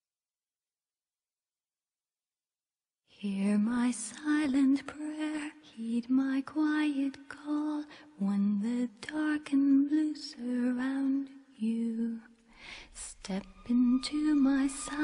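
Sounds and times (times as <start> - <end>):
woman singing: 3.1 - 15.0.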